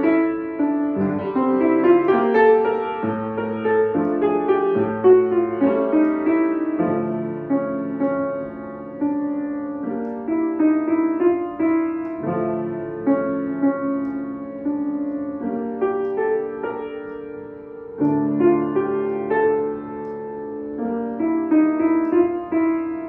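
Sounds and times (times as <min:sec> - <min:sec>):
grand piano melody: 0:00.0 - 0:23.0.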